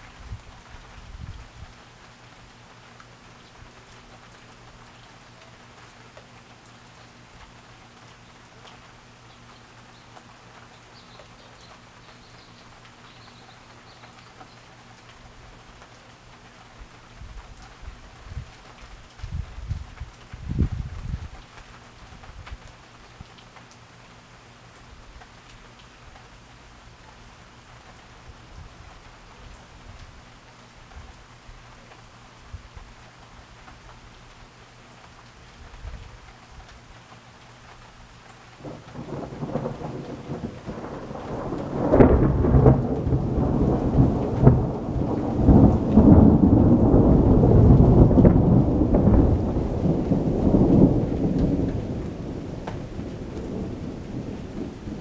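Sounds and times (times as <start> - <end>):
rain falling: 0.0 - 55.0
thunder rumbling: 38.6 - 55.0.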